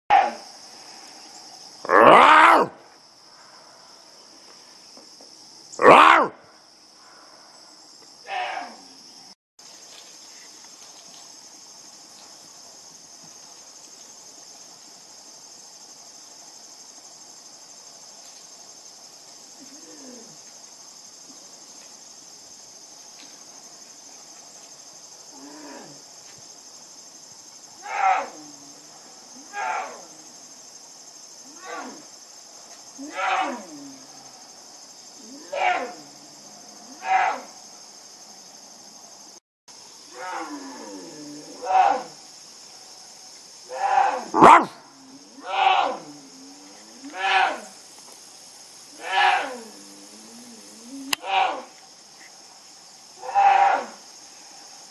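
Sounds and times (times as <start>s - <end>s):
insects chirping: 0.1s - 54.9s
bear bellowing: 1.8s - 2.8s, 5.8s - 6.4s, 8.3s - 8.8s, 27.8s - 28.6s, 29.4s - 30.2s, 31.5s - 32.0s, 33.0s - 34.0s, 35.3s - 36.2s, 36.9s - 37.6s, 40.1s - 42.2s, 43.7s - 47.8s, 48.9s - 51.8s, 53.2s - 54.0s.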